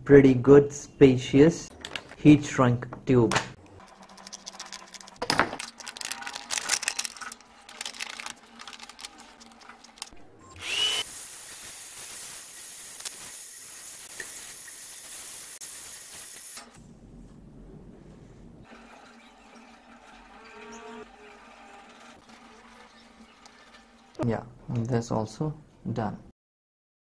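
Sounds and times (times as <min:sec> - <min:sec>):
plastic film crinkling: 0:03.8 - 0:10.2
scissors cutting plastic: 0:03.8 - 0:10.2
hair dryer blowing: 0:10.6 - 0:14.8.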